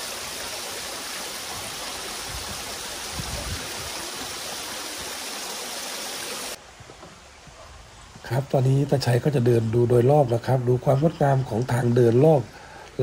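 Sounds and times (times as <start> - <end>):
waterfall splashing over stone: 0.0 - 6.6.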